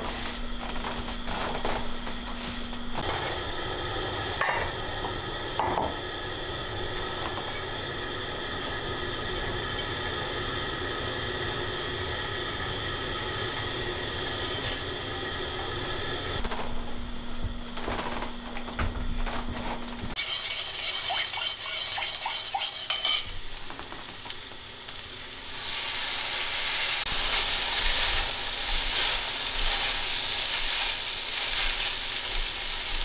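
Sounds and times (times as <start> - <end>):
camp stove burner roaring: 0.0 - 18.8, 19.5 - 33.0
utensils clinking: 20.2 - 23.8.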